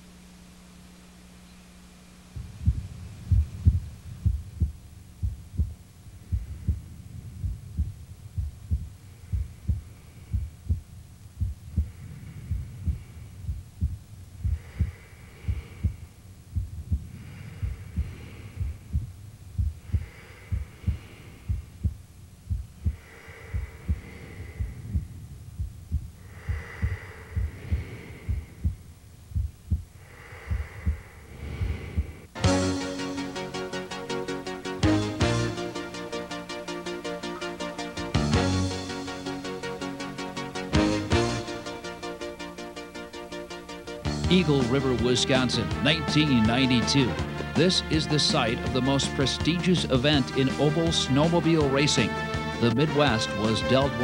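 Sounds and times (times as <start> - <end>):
heavy low thumping beat: 2.4 - 54.0.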